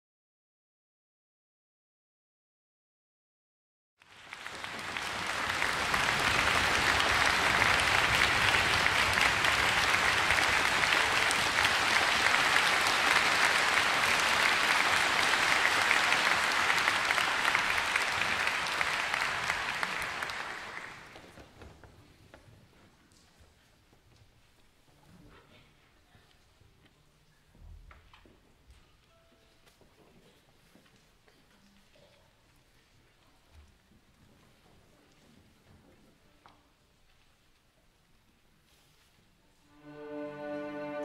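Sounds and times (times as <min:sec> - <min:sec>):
audience applauding: 0:04.0 - 0:21.7.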